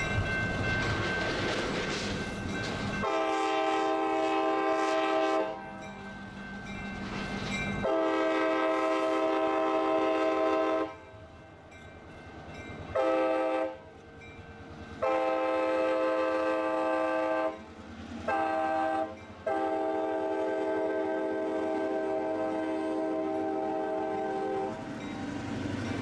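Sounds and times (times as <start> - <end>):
locomotive air horn blasts: 3.0 - 5.8, 7.8 - 11.0, 12.9 - 13.8, 15.0 - 17.6, 18.3 - 24.8.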